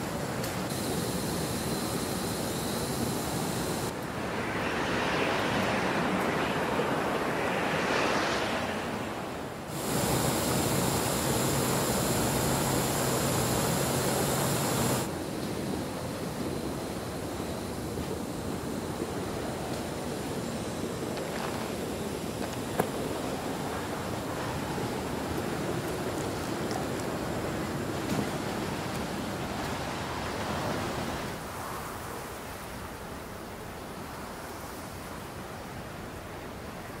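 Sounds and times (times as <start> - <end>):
gas stove hissing: 0.0 - 3.9, 9.7 - 22.8.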